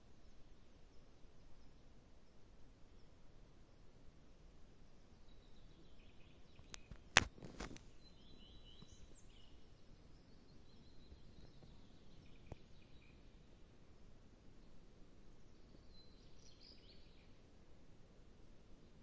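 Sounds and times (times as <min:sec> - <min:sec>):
bird chirps: 0:04.8 - 0:07.1, 0:07.9 - 0:13.5, 0:15.4 - 0:17.4.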